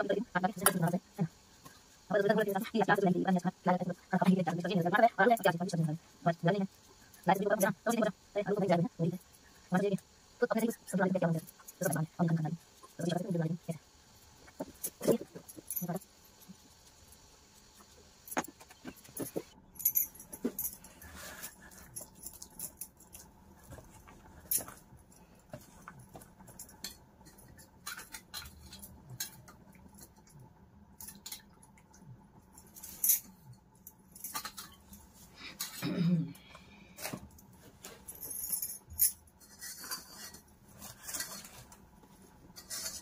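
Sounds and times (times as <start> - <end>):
steel bowls being handled: 37.0 - 41.8, 42.5 - 43.0.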